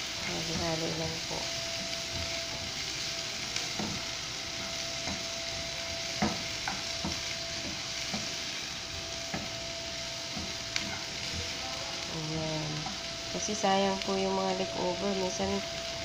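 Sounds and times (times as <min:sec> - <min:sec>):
vegetables sizzling in a frying pan: 0:00.0 - 0:16.0
spatula knocking and scraping pan: 0:03.7 - 0:05.3, 0:06.1 - 0:08.5, 0:09.2 - 0:09.6.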